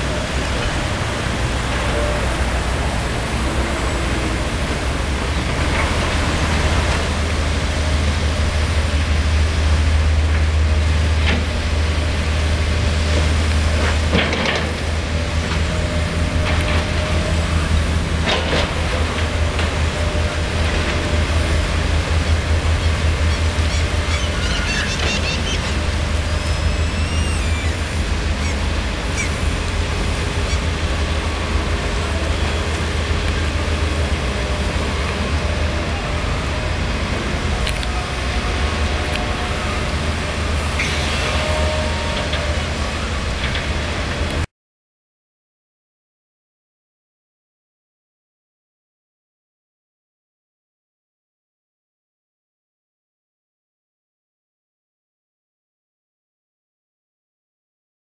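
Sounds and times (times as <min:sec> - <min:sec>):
excavator diesel engine rumbling: 0:00.0 - 0:44.4.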